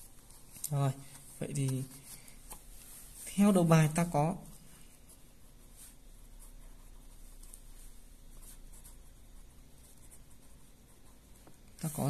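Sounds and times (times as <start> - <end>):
pen scratching on paper: 4.9 - 12.0.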